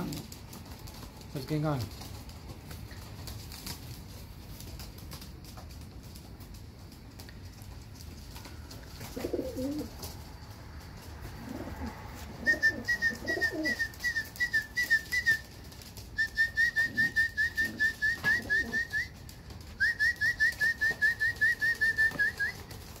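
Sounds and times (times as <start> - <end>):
pigeons cooing: 8.4 - 10.2, 11.0 - 14.1, 16.7 - 19.2.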